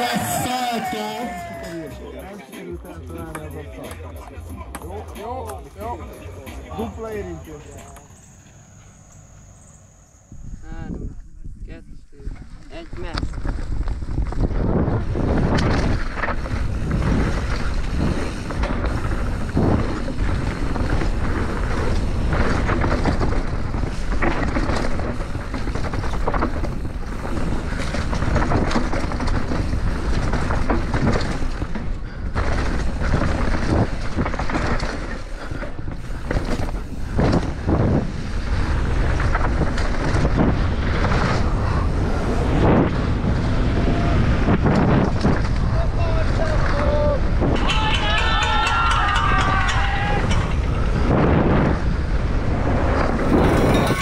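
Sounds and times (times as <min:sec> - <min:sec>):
wind over microphone: 0:10.2 - 0:54.0
bike chain and suspension clattering: 0:12.2 - 0:54.0
tyres rolling on dirt: 0:12.2 - 0:54.0.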